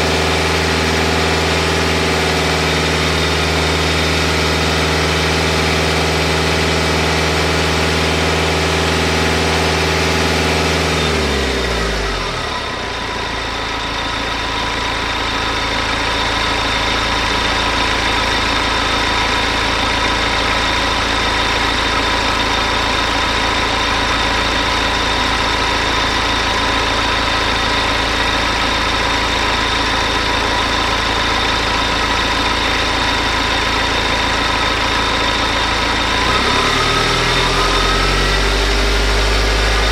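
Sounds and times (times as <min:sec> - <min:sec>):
car engine idling: 0:00.0 - 0:39.9
deep hum dropping in pitch: 0:33.6 - 0:39.9.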